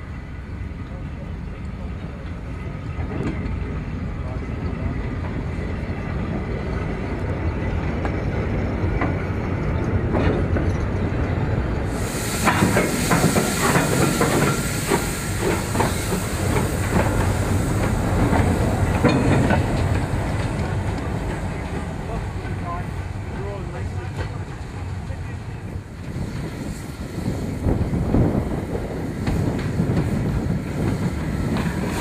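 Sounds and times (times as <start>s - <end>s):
wagons rumbling and clanking: 1.8s - 32.0s
wheels and couplings clanking: 6.4s - 11.6s, 12.4s - 25.2s
steam hissing: 11.8s - 32.0s.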